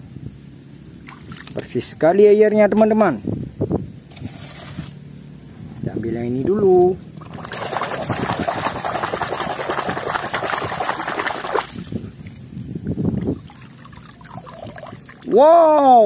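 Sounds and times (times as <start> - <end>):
water sloshing in plastic basin: 1.0 - 1.7, 7.2 - 12.4.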